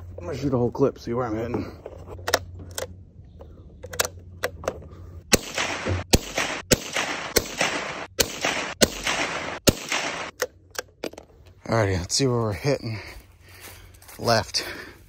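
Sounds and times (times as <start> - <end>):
rifle shots: 5.3 - 10.4.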